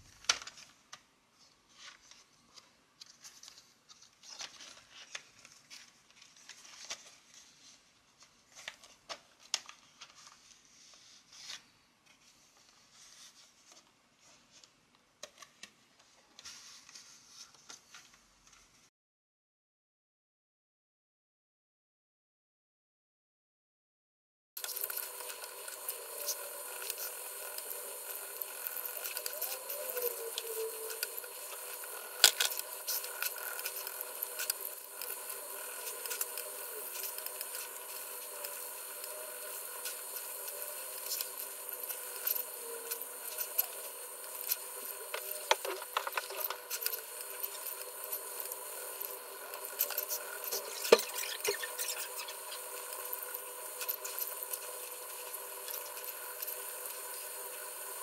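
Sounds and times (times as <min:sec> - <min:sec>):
steady hiss: 0:24.6 - 0:58.0.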